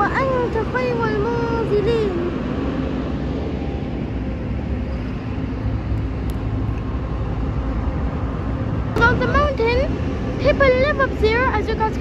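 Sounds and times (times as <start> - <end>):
road traffic engine rumble: 0.0 - 12.0.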